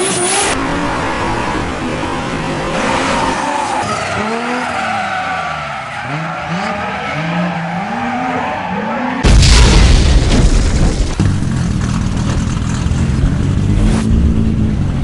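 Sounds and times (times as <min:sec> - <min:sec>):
race car engines revving: 0:00.0 - 0:09.2
tyres squealing and skidding: 0:00.0 - 0:09.2
loud burst of sound: 0:09.2 - 0:11.2.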